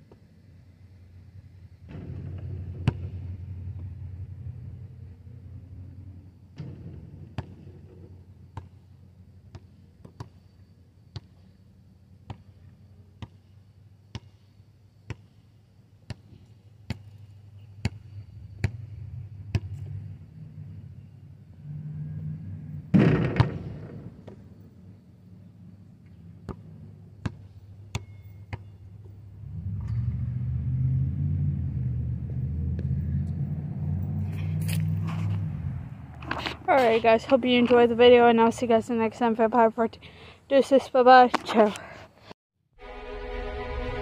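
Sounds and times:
basketball bouncing on asphalt: 0:01.8 - 0:04.2, 0:06.5 - 0:20.2, 0:22.9 - 0:24.7, 0:26.0 - 0:29.2
loud crash: 0:42.8 - 0:44.0.

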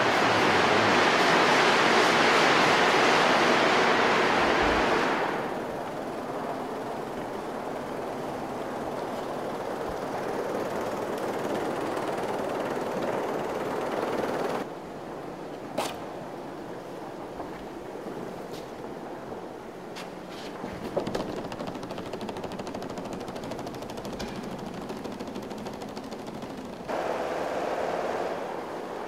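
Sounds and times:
paper rattling on loudspeakers: 0:20.6 - 0:26.9.

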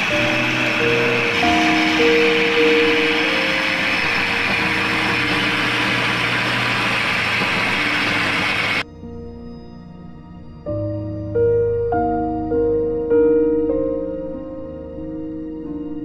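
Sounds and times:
mixer grinder running: 0:00.0 - 0:08.8
soft background music: 0:00.0 - 0:16.0.

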